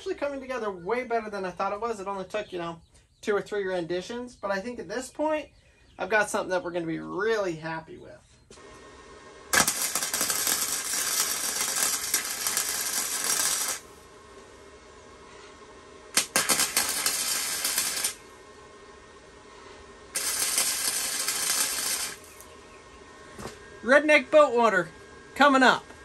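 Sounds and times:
arc welder crackling hiss: 8.4 - 24.2.

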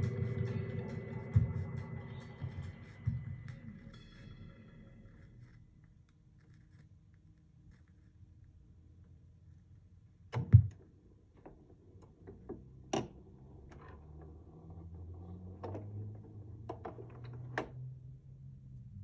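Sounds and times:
low hum: 0.0 - 16.5.

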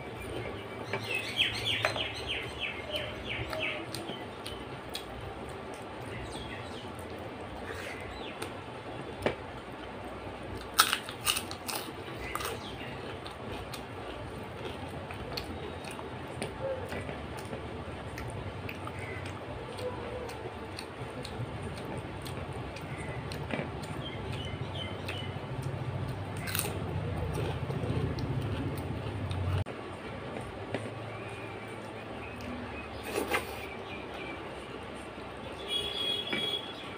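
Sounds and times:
chewing: 2.8 - 8.6, 10.6 - 33.8.

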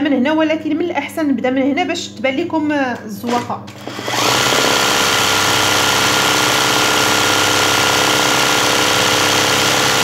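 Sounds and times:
sewing machine running fast: 3.8 - 10.0.

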